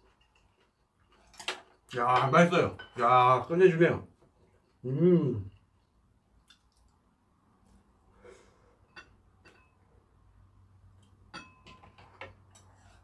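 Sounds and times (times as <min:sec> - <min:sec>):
faint eating sounds: 0:00.0 - 0:13.0.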